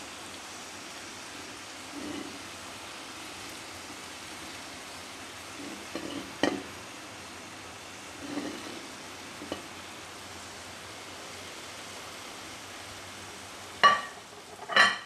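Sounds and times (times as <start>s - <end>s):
steady hiss: 0.0s - 15.0s
plate clinking on pot rim: 6.0s - 6.7s, 13.8s - 15.0s.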